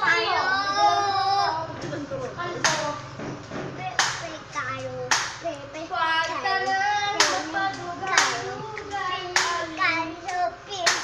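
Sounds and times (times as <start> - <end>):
small child singing: 0.0 - 1.8, 3.7 - 11.0
sharp clap-like beat: 2.6 - 5.5, 7.1 - 11.0.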